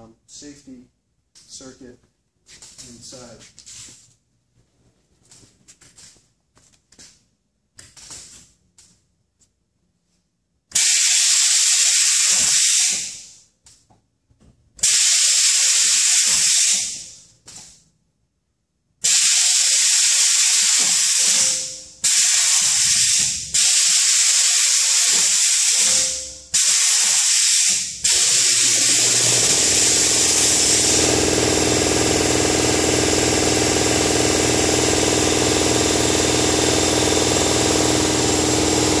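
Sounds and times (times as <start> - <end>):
compressed air hissing: 10.8 - 13.4, 14.8 - 17.2, 19.1 - 28.8.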